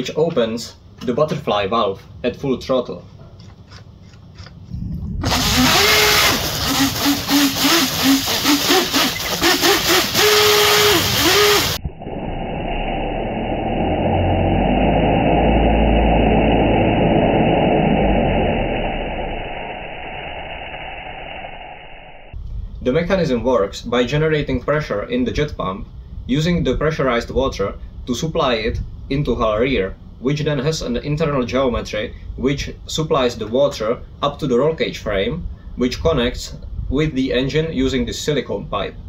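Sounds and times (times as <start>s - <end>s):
electric motor whine: 5.2s - 22.3s
water spray splashing: 5.3s - 11.8s.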